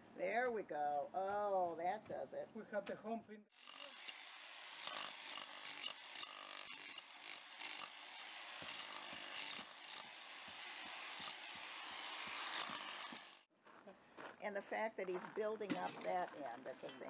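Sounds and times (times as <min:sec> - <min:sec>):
demolition hammer chipping soil: 0:03.6 - 0:13.5.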